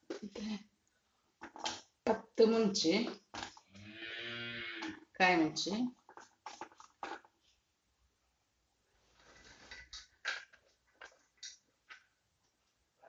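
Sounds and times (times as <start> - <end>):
soft rustle: 8.9 - 10.0.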